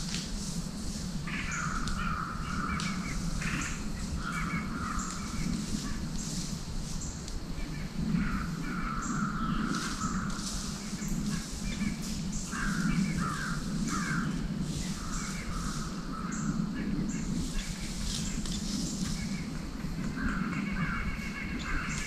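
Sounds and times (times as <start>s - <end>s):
steady low rumble: 0.0s - 22.0s
harsh caw-like animal calls: 1.2s - 6.1s, 8.1s - 17.8s, 19.2s - 22.0s.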